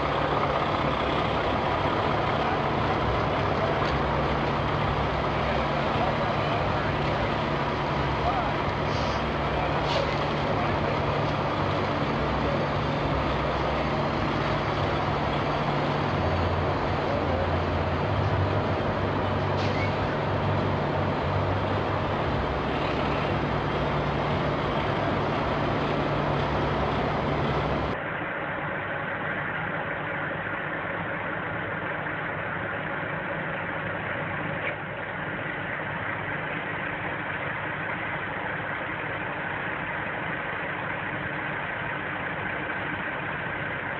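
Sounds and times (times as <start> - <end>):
truck diesel engine running: 0.0 - 43.9.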